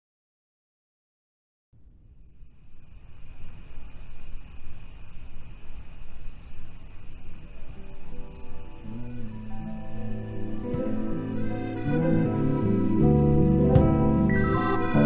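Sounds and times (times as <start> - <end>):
low rumbling noise: 1.8 - 15.0
crickets chirring: 2.0 - 15.0
faint musical notes: 7.4 - 15.0.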